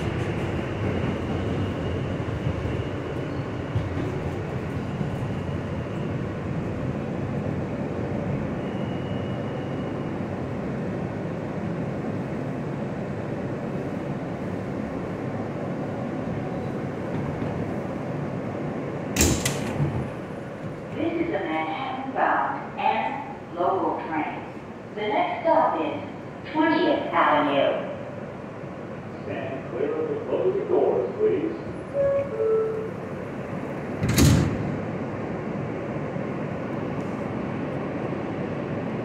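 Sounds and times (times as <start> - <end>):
subway car wheels rumbling: 0.0 - 39.0
loud clunk: 19.2 - 20.1.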